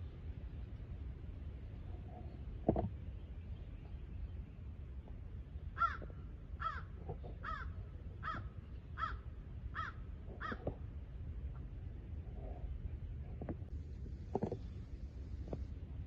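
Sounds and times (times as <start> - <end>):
crow cawing: 5.8 - 9.2, 9.8 - 10.7.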